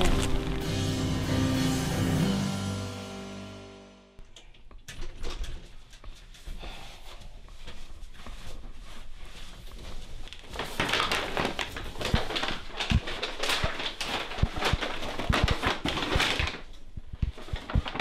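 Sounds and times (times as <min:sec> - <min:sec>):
paper bag rustling: 0:00.0 - 0:00.9, 0:07.8 - 0:18.0.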